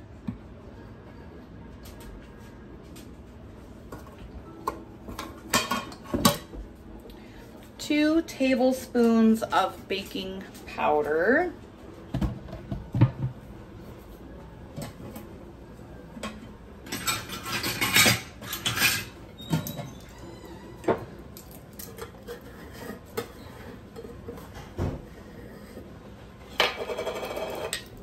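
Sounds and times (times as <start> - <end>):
utensils clinking and scraping: 16.2 - 20.1, 21.4 - 24.8.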